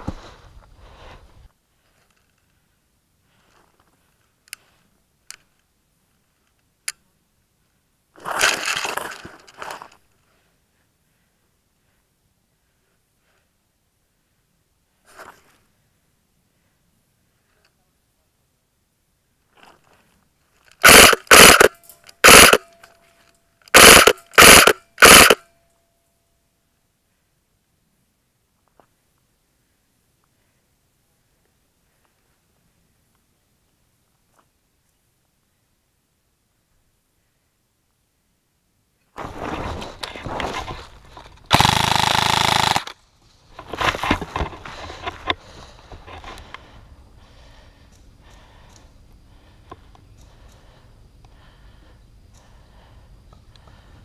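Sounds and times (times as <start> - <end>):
airsoft rifle bursts: 20.7 - 23.0, 23.6 - 25.5, 41.5 - 43.0.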